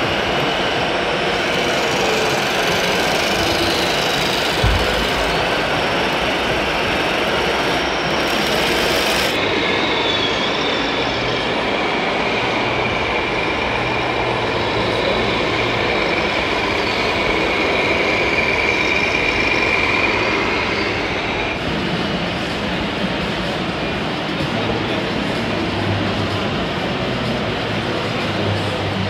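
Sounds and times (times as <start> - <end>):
model vehicles mechanical rumble: 1.2 - 9.4.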